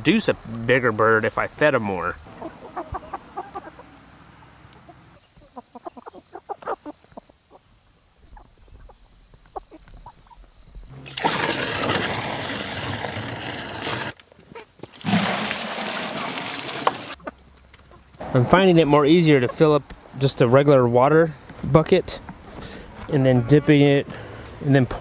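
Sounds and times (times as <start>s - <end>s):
water pouring into bucket: 11.0s - 14.2s, 15.0s - 17.2s.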